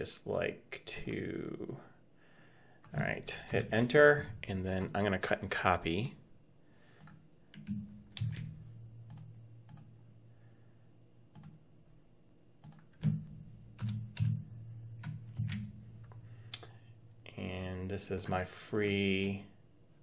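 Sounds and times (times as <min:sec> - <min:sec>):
faint low hum: 0:00.0 - 0:20.0
keyboard and mouse clicks: 0:07.0 - 0:10.0, 0:11.3 - 0:11.6, 0:12.6 - 0:16.7.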